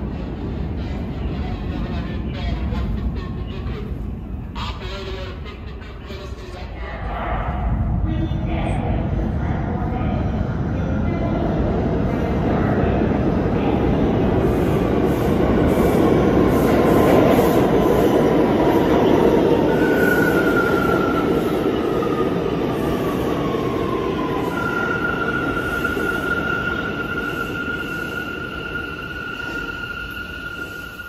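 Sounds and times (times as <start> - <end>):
subway train rumbling: 0.0 - 31.0.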